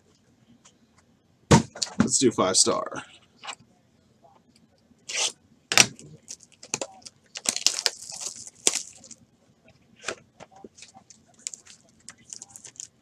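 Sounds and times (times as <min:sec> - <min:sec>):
plastic wrap crinkling and tearing: 0:06.2 - 0:09.2, 0:10.8 - 0:13.0.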